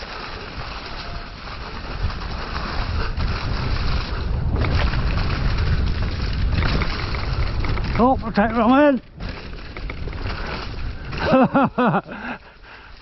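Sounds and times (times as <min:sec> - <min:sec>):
bike riding over muddy trail: 0:00.0 - 0:13.0
wind rush on microphone: 0:00.0 - 0:13.0.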